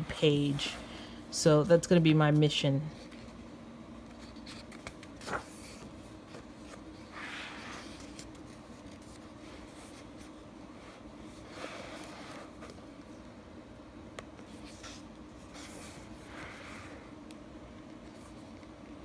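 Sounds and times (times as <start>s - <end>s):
faint room hum: 0.0s - 19.0s
paper pages rustling: 4.0s - 10.4s.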